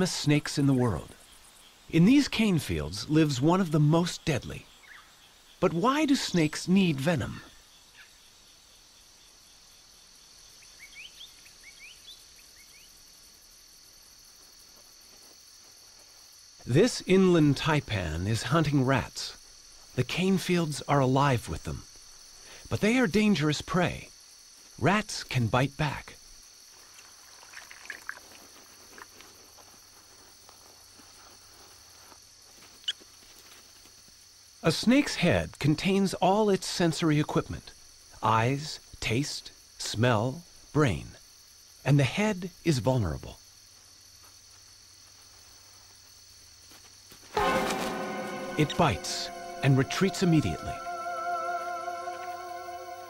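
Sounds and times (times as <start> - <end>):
crickets chirping: 0.0 - 53.0
faint night insects chorus: 0.0 - 53.0
short sharp sound: 47.3 - 53.0.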